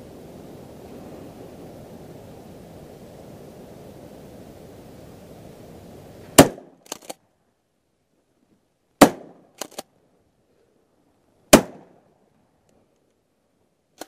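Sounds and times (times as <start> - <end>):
shotgun shots: 6.4 - 7.2, 9.0 - 9.8, 11.5 - 12.0
shotgun slide racking clacks: 6.8 - 7.2, 9.6 - 9.8.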